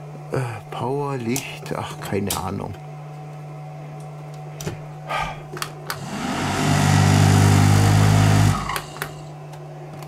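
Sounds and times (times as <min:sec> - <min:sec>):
electric motor hum with fan noise: 0:00.0 - 0:10.0.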